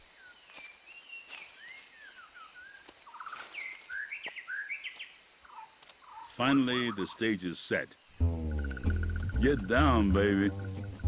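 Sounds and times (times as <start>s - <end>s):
insect drone: 0.0s - 11.0s
birds whistling gliding calls: 0.2s - 7.3s
bird harsh repeated notes: 8.2s - 11.0s.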